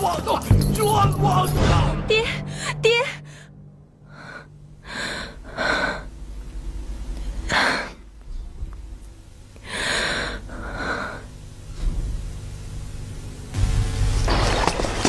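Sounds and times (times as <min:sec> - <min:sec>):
woman gasping breaths: 0:02.5 - 0:06.1, 0:09.6 - 0:11.3.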